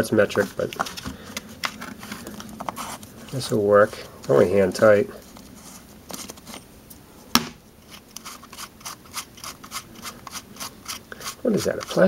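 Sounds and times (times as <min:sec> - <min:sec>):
small clicks and scrapes: 0:07.8 - 0:12.0.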